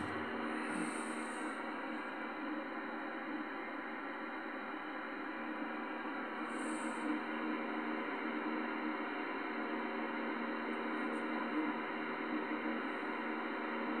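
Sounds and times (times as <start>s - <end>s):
radio static hiss: 0.0s - 2.7s
faint hum tones: 0.0s - 14.0s.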